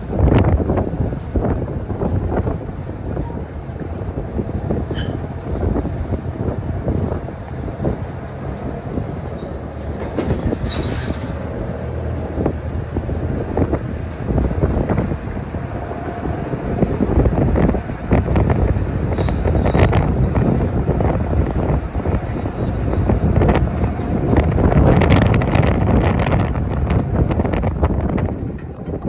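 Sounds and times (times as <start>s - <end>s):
baler engine rumbling: 0.0s - 29.0s
wind buffeting microphone: 0.0s - 29.0s
knocks and clanks of machine: 9.4s - 11.7s.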